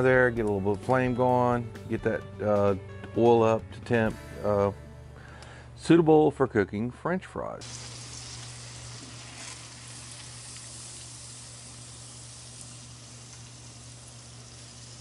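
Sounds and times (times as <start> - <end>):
oil sizzling in a pan: 7.6 - 15.0.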